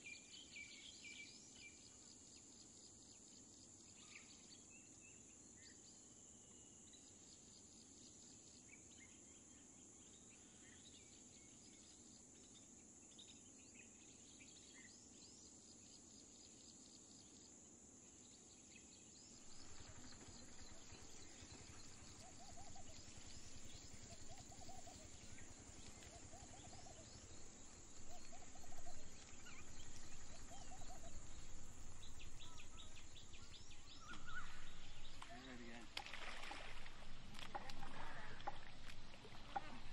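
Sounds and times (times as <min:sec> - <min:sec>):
insects droning: 0:00.0 - 0:39.9
small bird chirps: 0:19.4 - 0:36.7.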